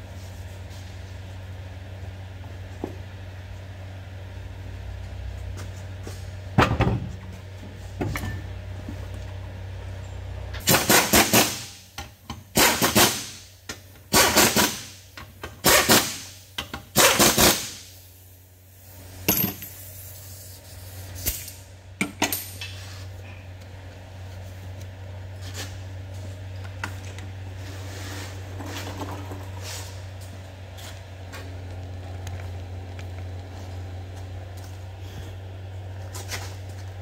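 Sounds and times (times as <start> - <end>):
impact wrench bursts: 10.6 - 11.9, 12.5 - 13.5, 14.1 - 17.9.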